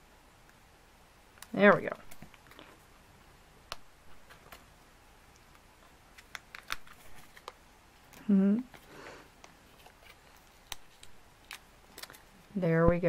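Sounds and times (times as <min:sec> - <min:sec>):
paper handling noises: 0:05.8 - 0:12.5.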